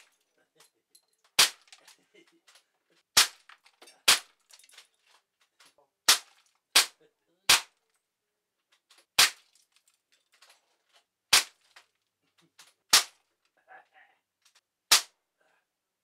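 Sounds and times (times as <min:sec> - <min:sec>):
air rifle shots: 0:14.9 - 0:15.1.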